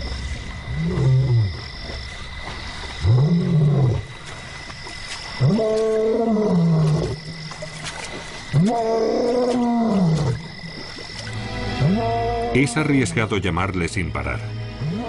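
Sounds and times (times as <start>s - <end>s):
lion roaring: 0.3s - 1.7s, 3.0s - 4.1s.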